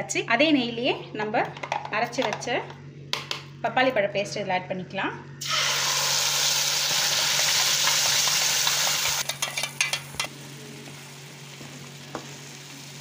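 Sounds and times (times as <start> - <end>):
paste sizzling in hot fat: 5.4 - 9.3.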